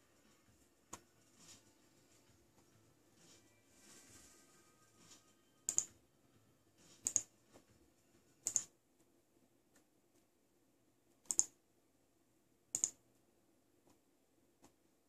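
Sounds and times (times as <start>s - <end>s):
mouse button clicks: 5.7s - 5.9s, 7.0s - 7.3s, 8.4s - 8.7s, 11.2s - 11.6s, 12.7s - 13.0s.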